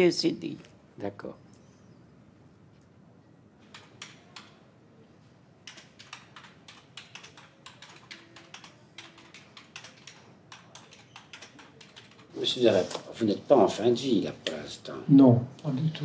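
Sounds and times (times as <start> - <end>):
faint keyboard typing: 3.6 - 4.8, 5.6 - 13.0.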